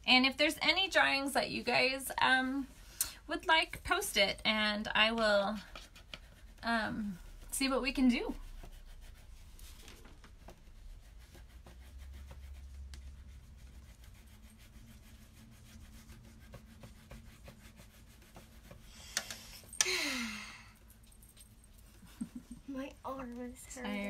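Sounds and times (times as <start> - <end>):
colouring tools scratching paper: 3.3 - 19.8
person sighing: 19.8 - 20.8.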